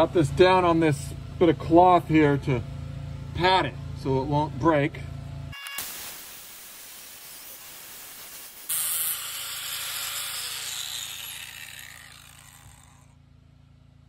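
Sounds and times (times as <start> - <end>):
angle grinder cutting tile: 5.6 - 13.1.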